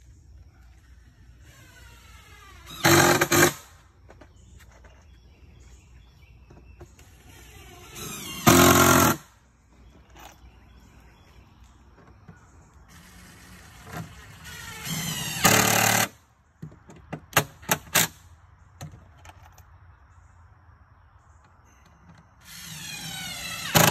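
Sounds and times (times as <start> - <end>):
impact driver driving screws: 2.6 - 3.7, 7.8 - 9.2, 13.9 - 16.1, 22.5 - 23.9.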